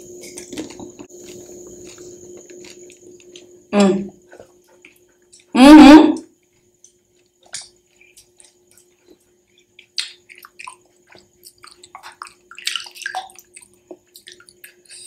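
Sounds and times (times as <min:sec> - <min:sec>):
wet crunchy chewing: 0:00.2 - 0:03.5.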